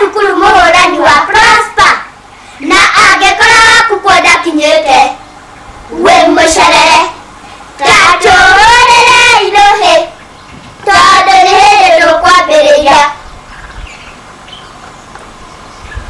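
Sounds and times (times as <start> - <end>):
child singing: 0.0 - 5.2, 5.9 - 7.2, 7.8 - 10.2, 10.8 - 13.2.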